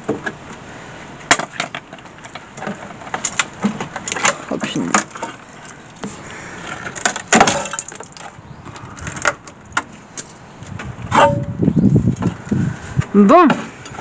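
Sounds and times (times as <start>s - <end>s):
sheet steel cracking and clattering: 6.8s - 8.3s.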